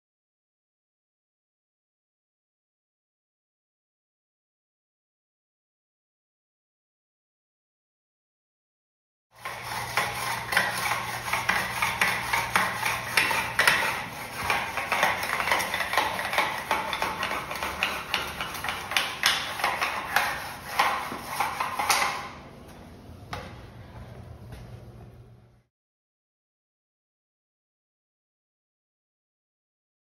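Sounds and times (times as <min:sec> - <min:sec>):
scrub brush scrubbing tile grout: 0:09.4 - 0:22.3.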